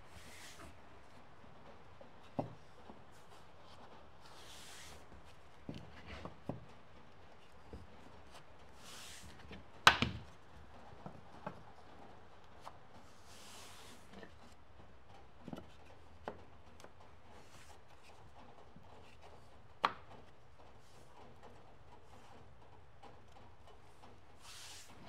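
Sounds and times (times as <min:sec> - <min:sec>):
wood flooring pieces tapped: 0:09.9 - 0:10.3.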